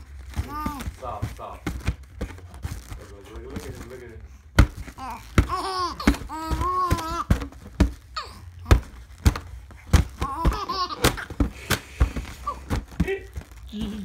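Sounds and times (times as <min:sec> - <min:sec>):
hands slapping foil balloon: 0:00.0 - 0:14.0
baby squealing and cooing: 0:00.4 - 0:01.0, 0:04.9 - 0:08.8, 0:10.1 - 0:11.4.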